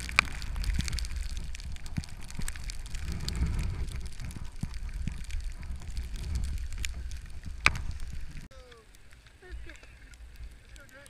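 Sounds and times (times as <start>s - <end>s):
wind rumble on microphone: 0.0s - 8.5s
skis sliding over snow: 0.0s - 11.0s.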